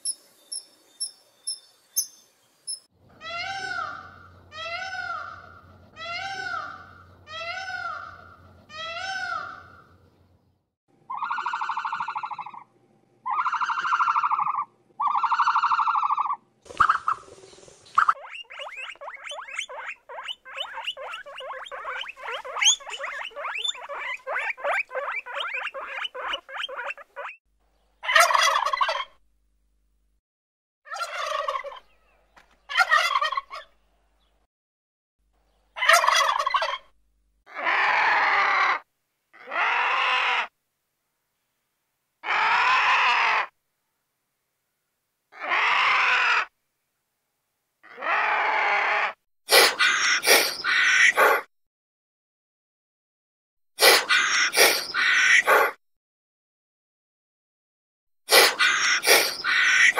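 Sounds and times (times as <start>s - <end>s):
rapid pulsed animal calls: 18.0s - 27.4s
drawn-out animal calls: 19.5s - 27.2s.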